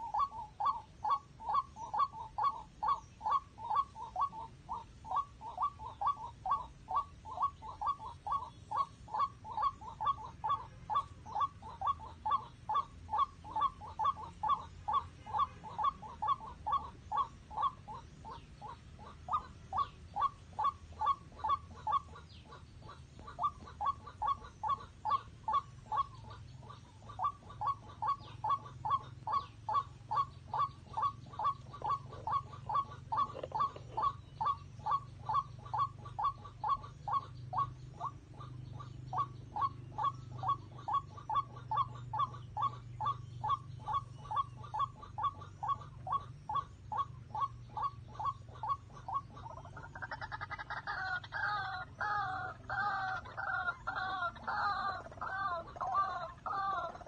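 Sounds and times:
waterhen calling: 0:00.0 - 0:57.0.

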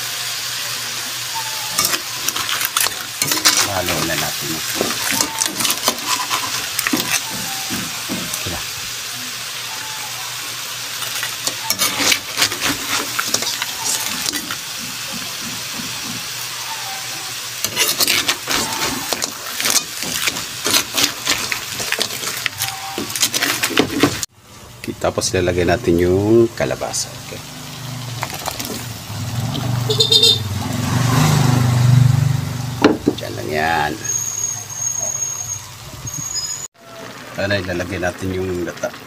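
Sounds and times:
cooking hiss: 0:00.0 - 0:39.0
crab shells clattering in pan: 0:01.7 - 0:08.8, 0:10.9 - 0:16.6, 0:17.3 - 0:24.3, 0:28.1 - 0:29.7.

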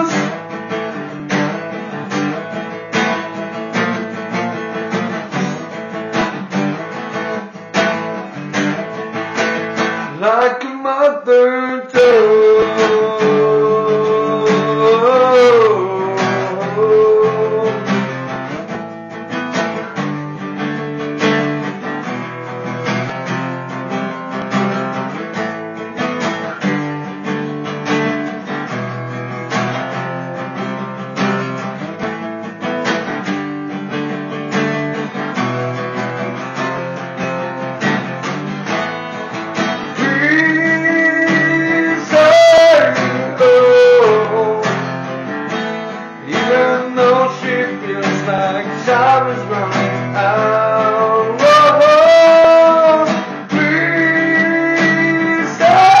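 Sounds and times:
man singing: 0:00.0 - 0:00.7, 0:09.8 - 0:18.7, 0:39.2 - 0:56.0
acoustic guitar strumming: 0:00.0 - 0:56.0.

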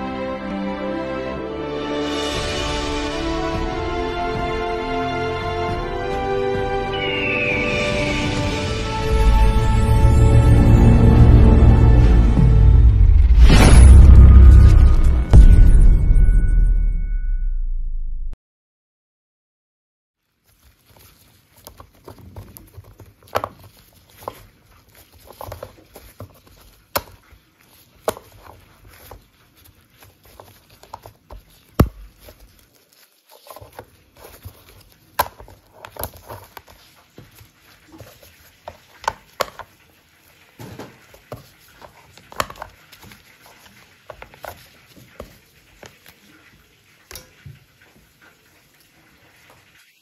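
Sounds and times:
soft handling noise: 0:20.2 - 0:49.9.

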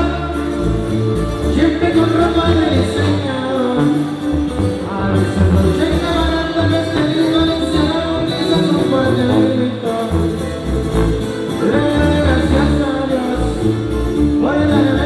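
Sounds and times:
person singing: 0:00.0 - 0:10.7, 0:11.4 - 0:15.0
guitar: 0:00.0 - 0:15.0
heavy bass line: 0:00.0 - 0:15.0.

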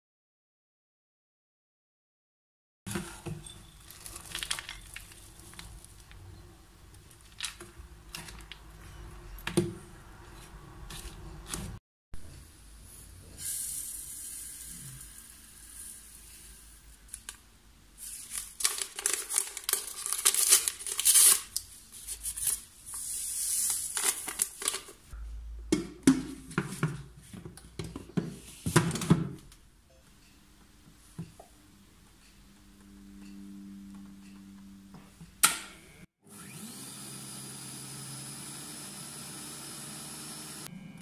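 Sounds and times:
paper sachet tearing and crinkling: 0:03.8 - 0:06.1, 0:18.0 - 0:25.0.

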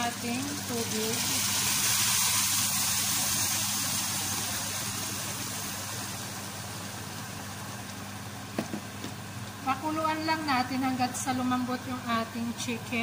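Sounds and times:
water pouring into a pan: 0:00.0 - 0:06.7.

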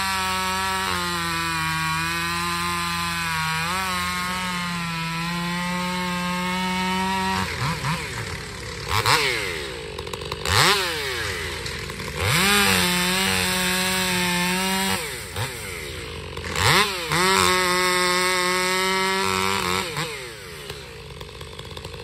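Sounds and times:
chainsaw cutting log: 0:00.0 - 0:22.0.

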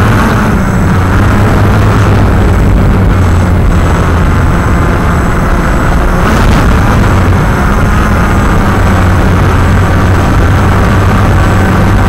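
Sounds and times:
drone motors humming: 0:00.0 - 0:12.0.

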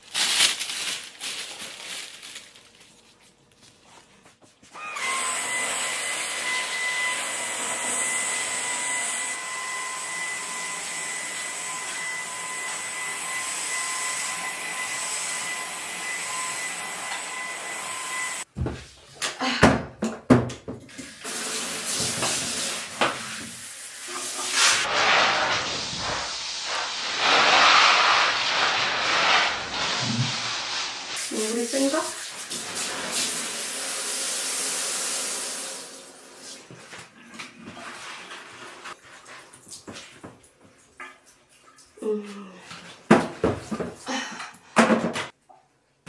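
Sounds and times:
vacuum cleaner running: 0:04.7 - 0:18.5, 0:21.2 - 0:36.8
water hissing from shower hose: 0:21.2 - 0:36.7.

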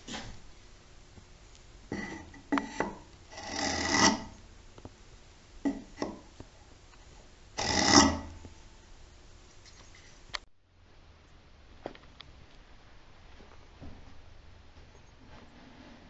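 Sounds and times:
hand tool rasping wood: 0:01.9 - 0:04.4, 0:07.6 - 0:08.5.

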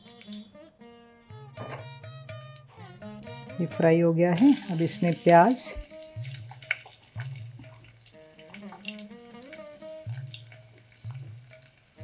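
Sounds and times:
soft instrumental music: 0:00.0 - 0:12.0
oil sizzling faintly: 0:02.6 - 0:12.0.

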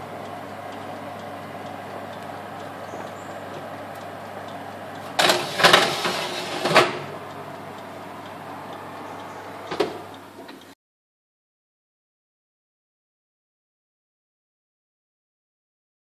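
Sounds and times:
steady low hum: 0:00.0 - 0:10.8
metal baking tray scraping: 0:05.2 - 0:07.1.

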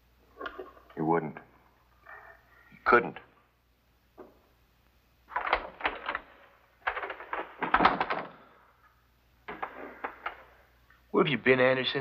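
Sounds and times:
door knocks and clatters: 0:05.3 - 0:08.5, 0:09.5 - 0:10.6.

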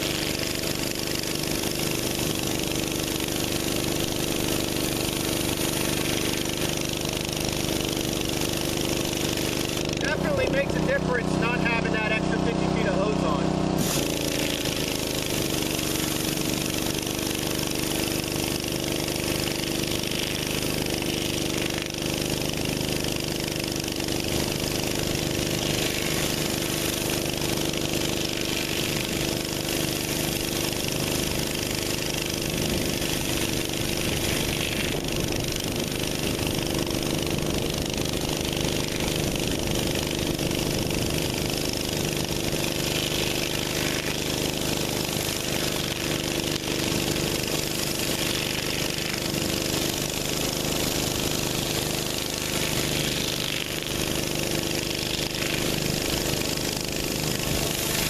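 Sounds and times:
high-pressure water hissing: 0:00.0 - 0:58.0
pressure washer engine running: 0:00.0 - 0:58.0.

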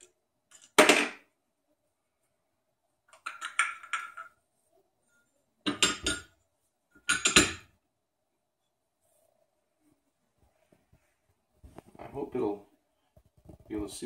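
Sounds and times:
metal mold plates clinking: 0:05.7 - 0:06.3, 0:07.0 - 0:07.7.

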